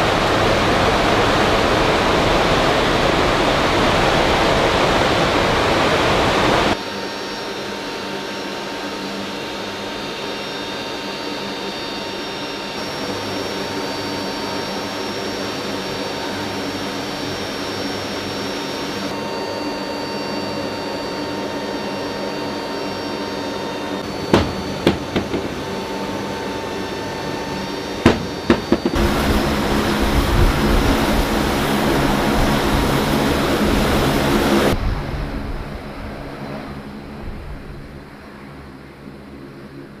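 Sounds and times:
turboprop engines humming: 0.0s - 40.0s
sharp knocks: 24.3s - 25.7s.

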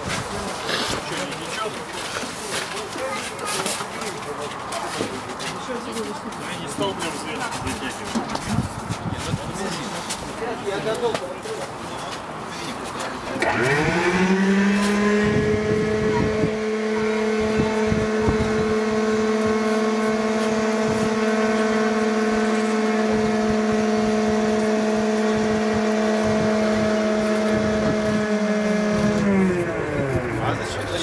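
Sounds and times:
machine whine: 13.4s - 31.0s.

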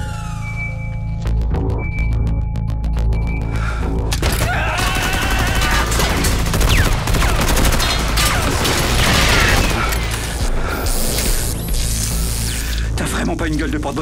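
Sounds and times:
film music: 0.0s - 14.0s
rapid automatic gunfire: 4.6s - 10.1s.

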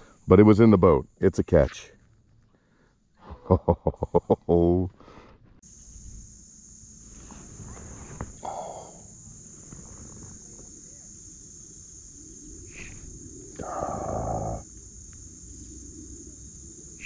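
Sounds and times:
high-pitched insect buzz: 5.6s - 17.0s.

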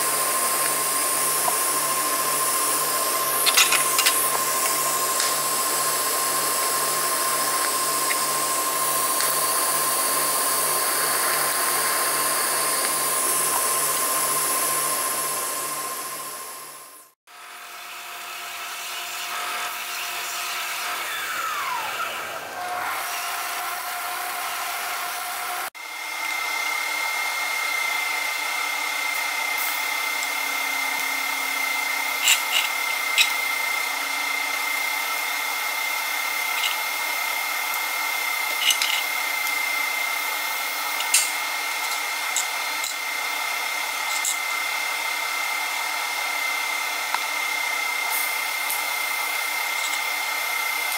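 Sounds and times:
belt sander grinding metal: 0.0s - 16.2s, 19.0s - 25.7s, 30.1s - 45.0s, 48.6s - 50.9s
machine hum with high whine: 0.0s - 50.9s.

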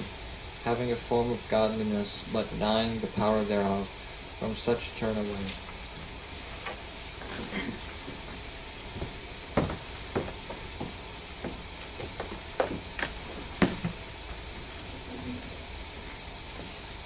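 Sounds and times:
steady hiss: 0.0s - 17.0s
footsteps: 5.4s - 16.8s
dull knocks: 8.0s - 14.1s.

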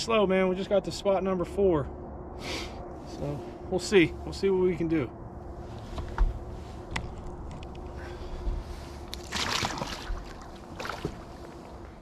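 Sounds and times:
fish splashing into water: 9.1s - 11.4s.

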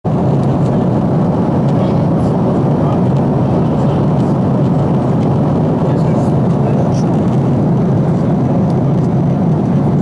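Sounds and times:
airliner cabin rumble: 0.0s - 10.0s.

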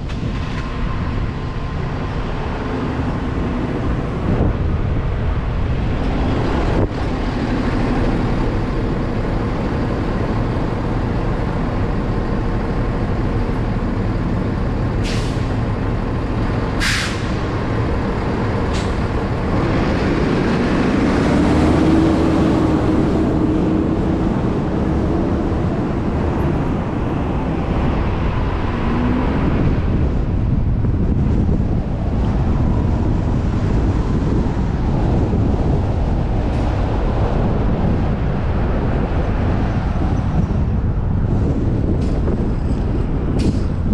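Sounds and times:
car road and engine noise: 0.0s - 43.9s
short sharp hisses: 16.8s - 17.4s.

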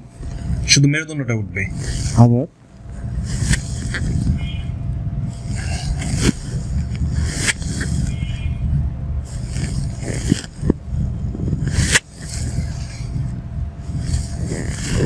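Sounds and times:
microphone rubbing on clothing: 0.0s - 0.8s, 1.6s - 15.0s
sharp scrapes: 1.7s - 2.2s, 3.2s - 4.7s, 5.3s - 8.7s, 9.3s - 15.0s.

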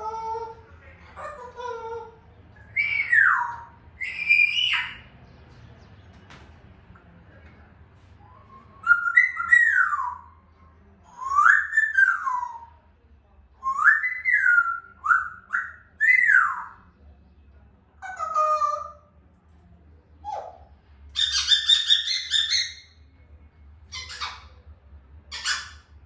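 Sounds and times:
parrot whistling: 2.7s - 5.1s, 8.5s - 10.3s, 11.1s - 12.7s, 13.6s - 16.8s.

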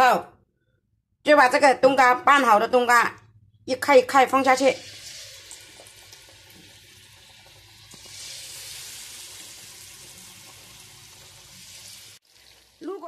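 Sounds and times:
oil sizzling in a pan: 4.7s - 13.0s.

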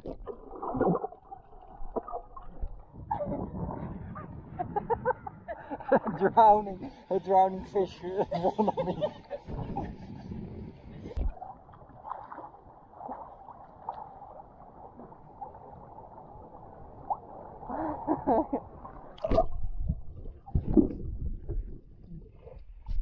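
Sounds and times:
muffled water gurgling and sloshing: 0.0s - 23.0s
sharp water splashes: 11.3s - 15.7s, 19.0s - 19.8s.

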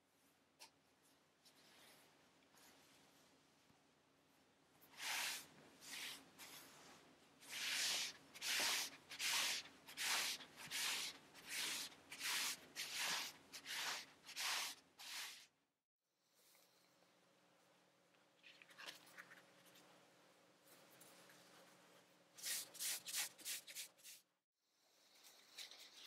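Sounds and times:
palm brushing on towel: 7.5s - 15.5s.

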